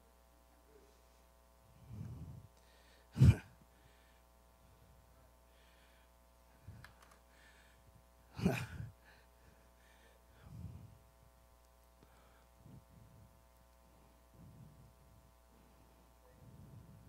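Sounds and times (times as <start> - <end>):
faint electrical hum: 0.0 - 17.0
breaths and sighs into microphone: 0.7 - 11.4, 12.0 - 17.0.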